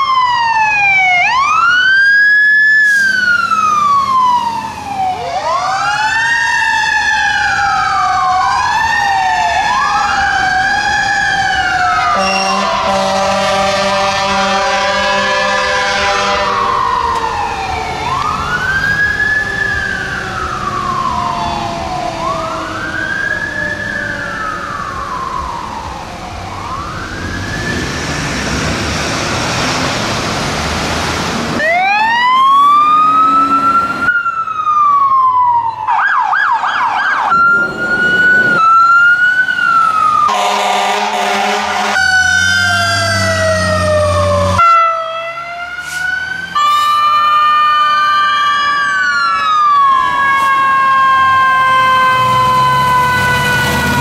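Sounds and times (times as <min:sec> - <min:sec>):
fast warbling siren yelp: 0:00.0 - 0:27.9, 0:31.6 - 0:54.0
electronic siren wails: 0:00.0 - 0:28.0, 0:31.6 - 0:54.0
mechanical siren wailing: 0:00.0 - 0:28.0, 0:31.6 - 0:54.0
steady horn tone blasts: 0:12.0 - 0:16.8, 0:40.3 - 0:42.8, 0:44.4 - 0:47.4.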